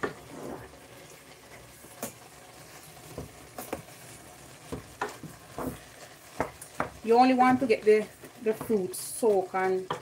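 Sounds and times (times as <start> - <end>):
wooden spoon knocking and scraping pot: 3.0 - 10.0.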